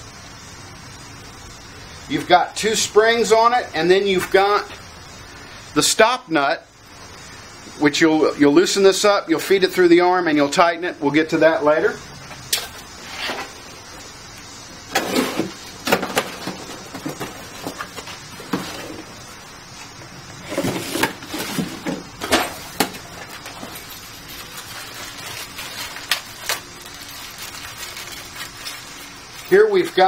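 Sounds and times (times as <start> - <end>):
cardboard and bags rustling: 14.9 - 19.3, 20.4 - 30.0.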